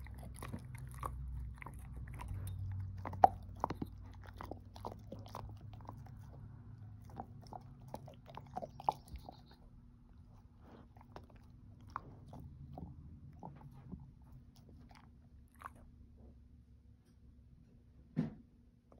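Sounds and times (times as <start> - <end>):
dog crunching chew treat: 0.0 - 9.6
dog licking: 0.0 - 16.0.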